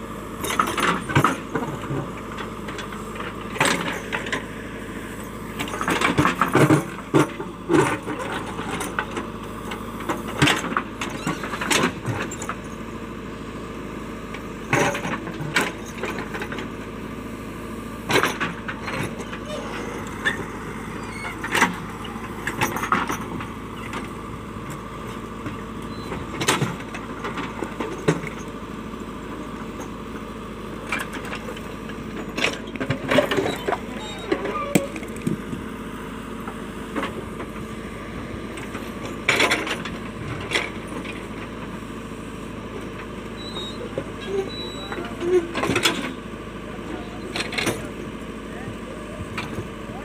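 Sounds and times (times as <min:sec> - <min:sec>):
diesel engine running: 0:00.0 - 0:50.0
stones tumbling: 0:34.8 - 0:35.7.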